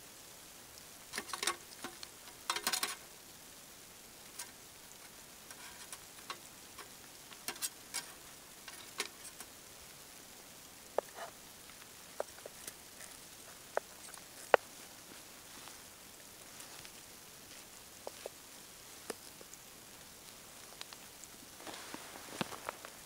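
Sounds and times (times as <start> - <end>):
faint sizzle: 0.0 - 23.0
tongs and knife clinking on grill: 1.2 - 3.0, 5.5 - 9.5.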